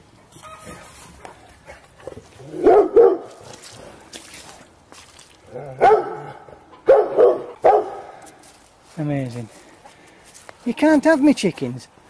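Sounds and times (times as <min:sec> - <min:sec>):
dog barking: 0:02.6 - 0:03.4, 0:05.8 - 0:08.1.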